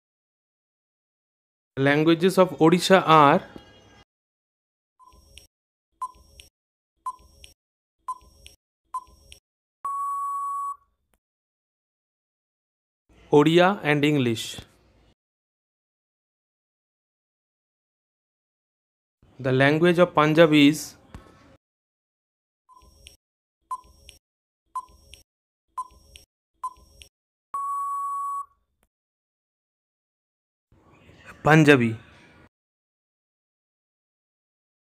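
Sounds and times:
countdown timer beeps: 9.0s - 10.8s, 25.8s - 27.0s, 27.6s - 28.5s
long steady beep: 9.9s - 10.8s, 27.6s - 28.5s.

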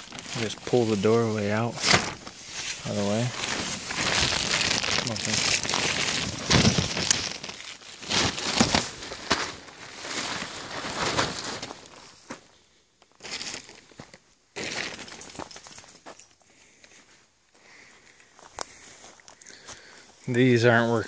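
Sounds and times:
footsteps on dry leaves: 0.0s - 12.0s
plastic tarp rustling: 0.0s - 12.5s, 13.1s - 15.9s.

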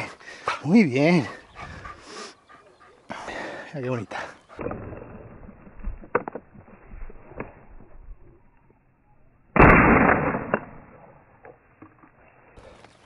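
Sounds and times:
loud shotgun shot: 9.6s - 10.9s.

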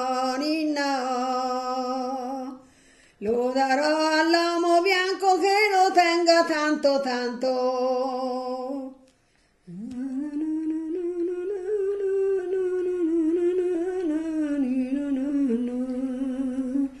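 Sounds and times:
woman humming a lullaby: 9.7s - 17.0s.

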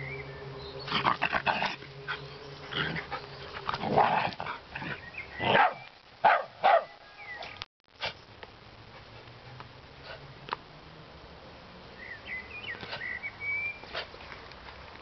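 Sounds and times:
dogs barking and yapping: 0.9s - 8.2s.

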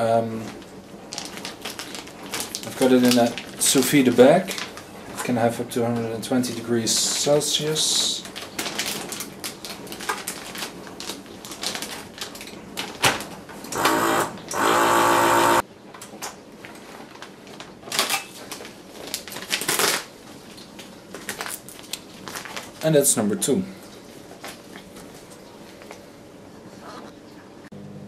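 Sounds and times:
plastic bag crinkling: 0.4s - 5.0s, 8.1s - 13.7s, 16.6s - 23.3s
vacuum pump running: 13.7s - 15.6s.

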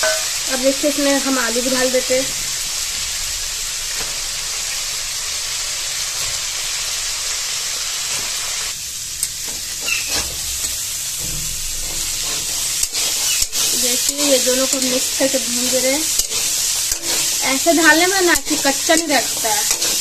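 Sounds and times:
hot oil sizzling: 0.0s - 20.0s
metal spatula scraping pan: 9.4s - 20.0s.

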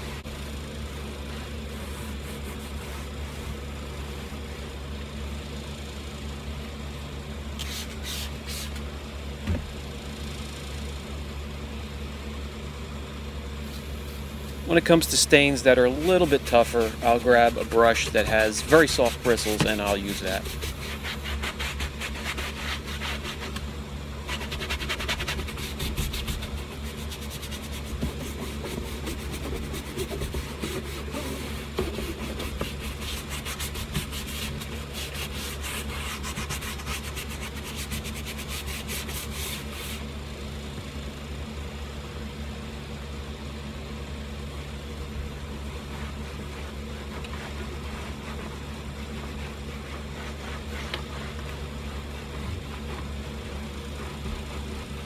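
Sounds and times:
brush scrubbing fabric: 0.9s - 4.5s, 14.7s - 23.6s, 24.2s - 40.1s, 45.6s - 55.0s.

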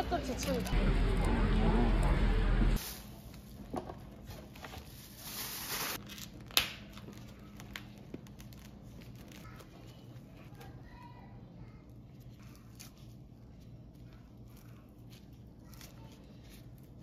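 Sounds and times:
plastic wrap crinkling and tearing: 4.5s - 10.8s, 12.1s - 17.0s.

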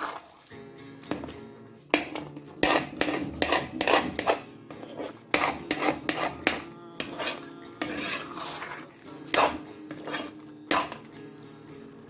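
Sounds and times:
faint background music: 0.0s - 12.0s
spatula scraping in pan: 1.1s - 11.2s
spatula knocking on pan: 1.9s - 4.4s, 5.3s - 8.2s, 9.3s - 11.1s.

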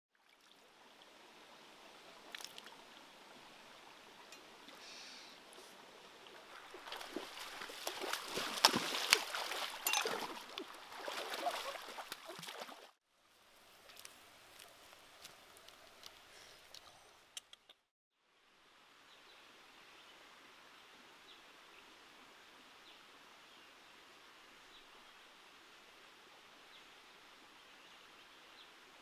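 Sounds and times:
stream running over rocks: 0.1s - 16.8s
feet splashing through water: 6.2s - 13.0s.

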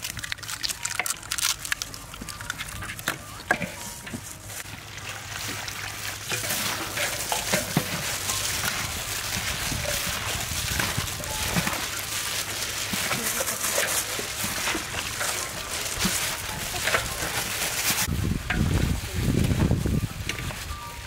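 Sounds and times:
eggs cracking into metal bowl: 0.0s - 3.8s
hands mixing batter: 0.0s - 18.1s.

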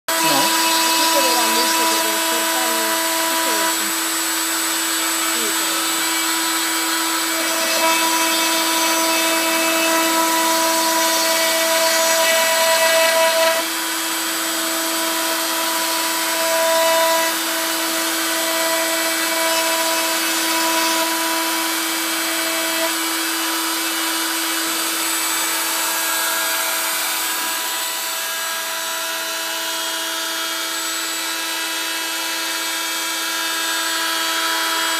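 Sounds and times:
stepper motor tones: 0.1s - 13.6s
hiss of cutting wood: 0.1s - 29.0s.

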